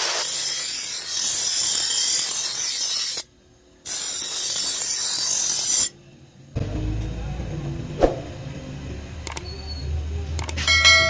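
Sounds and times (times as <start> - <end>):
grinding wheel on steel blade: 0.0 - 3.3, 3.9 - 6.0
low steady hum: 6.0 - 11.0
sharp click: 10.4 - 10.6.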